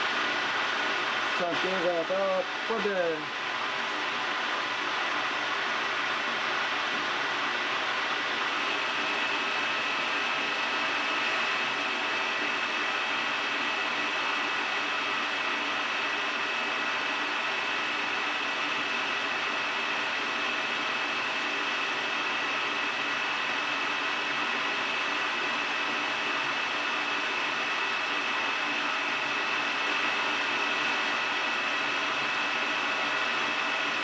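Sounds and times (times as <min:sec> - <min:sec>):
metal lathe hiss and whine: 0:08.3 - 0:34.0.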